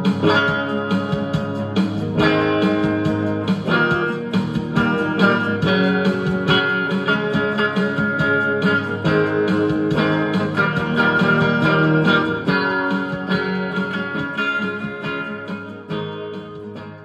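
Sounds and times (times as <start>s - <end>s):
strummed acoustic guitar chords: 0.0s - 17.0s.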